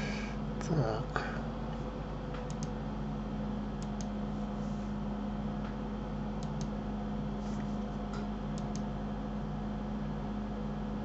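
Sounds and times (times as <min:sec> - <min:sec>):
low electrical hum: 0:00.0 - 0:11.0
computer mouse clicking: 0:02.4 - 0:02.8, 0:03.8 - 0:04.1, 0:06.4 - 0:06.8, 0:08.5 - 0:08.9.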